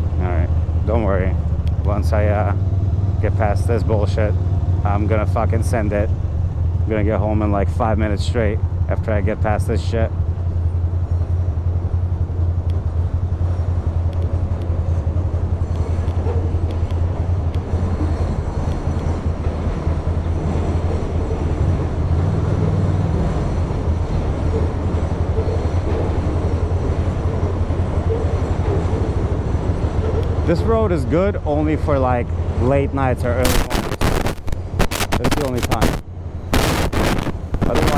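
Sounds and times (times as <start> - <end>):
motorcycle engine rumble: 31.6 - 37.9.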